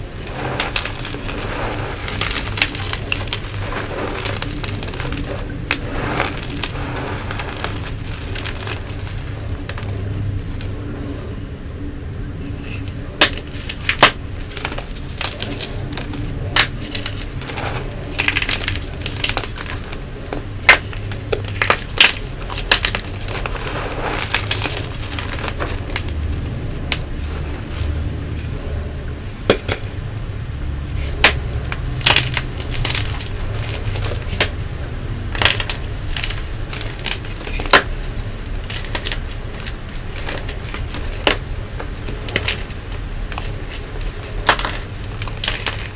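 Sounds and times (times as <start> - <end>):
chalk crunching by hand: 0.0 - 11.4, 12.6 - 28.6, 30.9 - 45.9.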